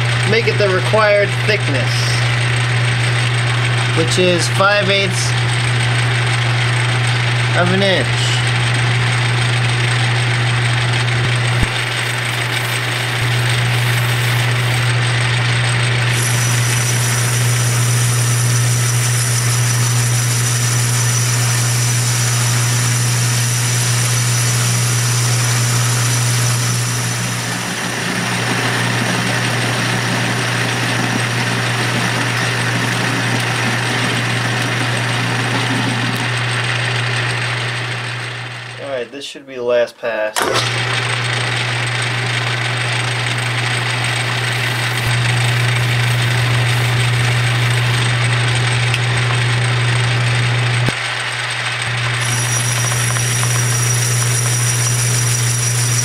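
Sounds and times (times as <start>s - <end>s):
lathe motor hum: 0.0s - 38.8s, 40.4s - 56.0s
thin high whine: 51.9s - 56.0s.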